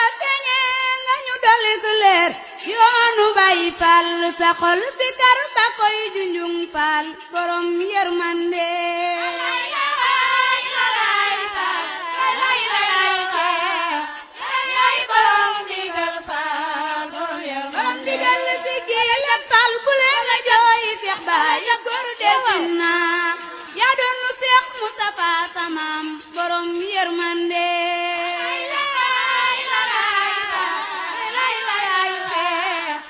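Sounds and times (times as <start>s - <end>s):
other voices singing: 8.5s - 25.3s, 26.3s - 33.0s
lead voice singing: 8.8s - 24.6s.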